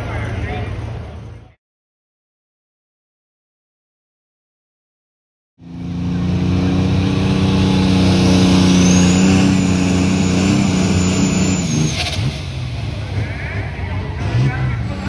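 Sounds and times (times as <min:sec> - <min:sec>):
high whine: 0:05.6 - 0:14.1
diesel tractor engine at full throttle: 0:05.6 - 0:15.0.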